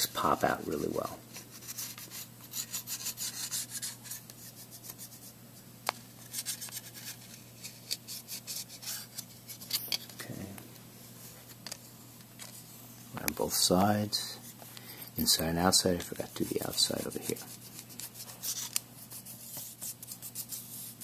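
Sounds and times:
stick scratching on foil: 0.2 - 5.3, 15.2 - 21.0.

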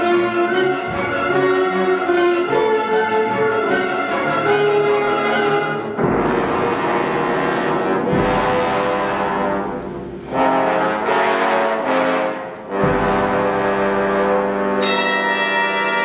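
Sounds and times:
orchestral brass chords: 0.0 - 16.0
low drum strokes: 5.9 - 10.7.

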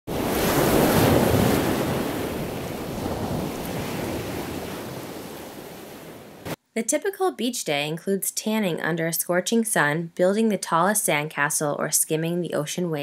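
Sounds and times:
ocean surf: 0.1 - 6.6
wind: 0.1 - 6.6.

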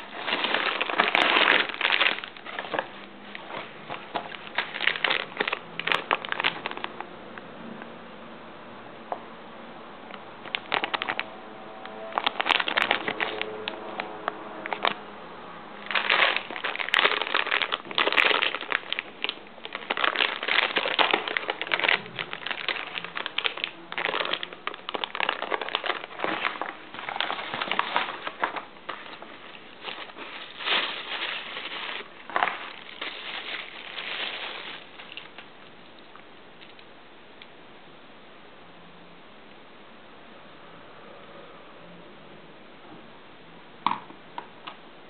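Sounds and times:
foil bag crinkling: 0.0 - 7.0, 10.4 - 11.3, 12.1 - 15.0, 15.8 - 36.2.

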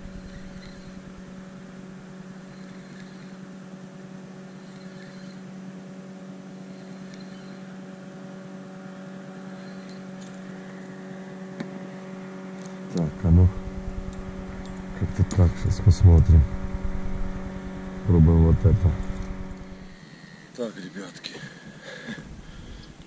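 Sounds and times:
steady low hum: 0.0 - 23.0
faint high chirps: 6.6 - 7.8.

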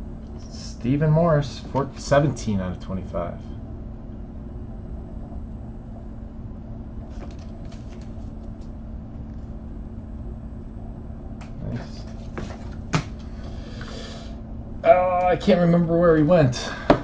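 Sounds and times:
low room hum: 0.0 - 17.0
cards rustling and tapping: 7.1 - 8.7, 12.0 - 13.9.

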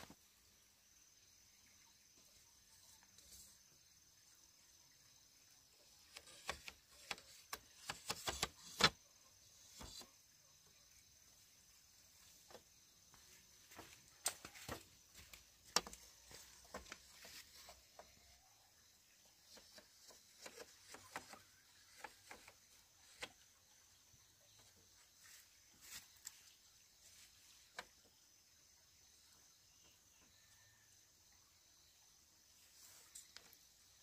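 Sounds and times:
bamboo slats knocking and clicking: 6.0 - 10.1, 13.8 - 18.2, 19.5 - 23.5.

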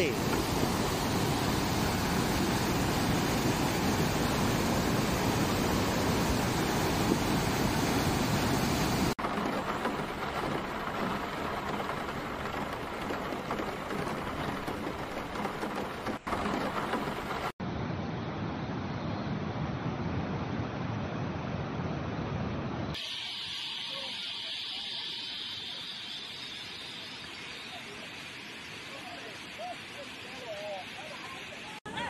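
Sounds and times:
floodwater rushing: 0.0 - 17.6
rain hissing: 0.0 - 17.6, 23.0 - 32.0.

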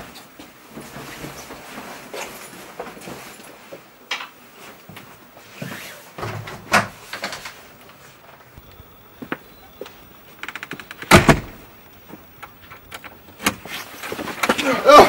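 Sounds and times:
footsteps: 7.9 - 12.8
wooden door being pulled open: 10.4 - 11.7.

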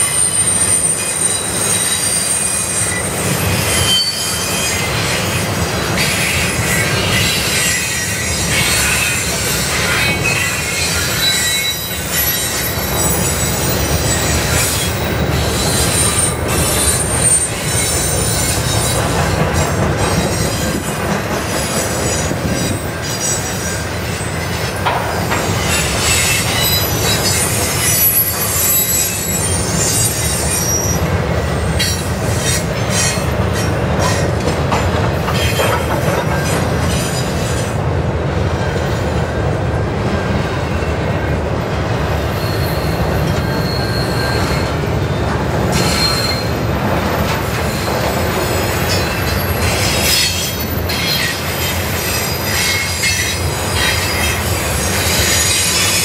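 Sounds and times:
high-pitched wheel squeal: 0.0 - 5.3, 6.0 - 19.0, 25.4 - 31.1, 42.3 - 44.9, 45.7 - 46.7, 47.7 - 56.0
freight train wheels rumbling: 0.0 - 56.0.

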